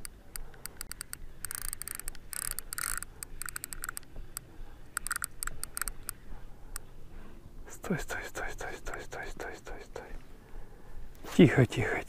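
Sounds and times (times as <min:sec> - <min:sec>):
fishing reel clicking: 0:00.0 - 0:06.8.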